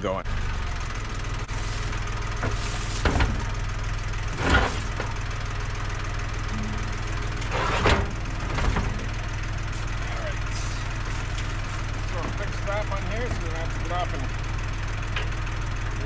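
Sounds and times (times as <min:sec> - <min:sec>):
tractor engine idling: 0:00.0 - 0:16.0
clunks and rattles: 0:00.8 - 0:09.8, 0:10.4 - 0:14.2, 0:15.0 - 0:16.0.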